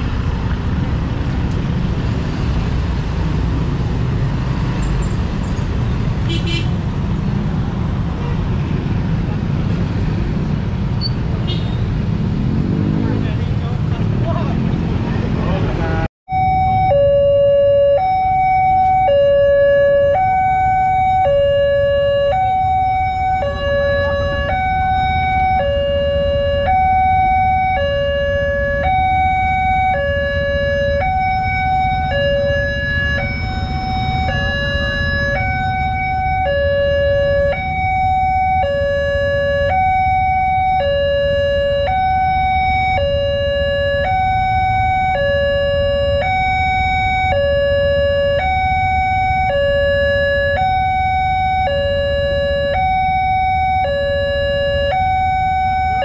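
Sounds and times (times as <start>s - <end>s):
low rumble of road traffic: 0.0s - 56.0s
level crossing warning alarm: 16.3s - 56.0s.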